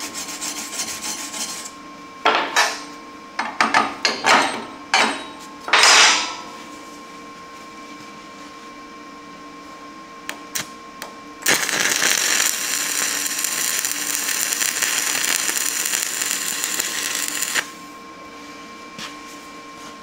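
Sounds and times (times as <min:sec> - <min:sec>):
welding arc crackling: 0:11.4 - 0:17.8.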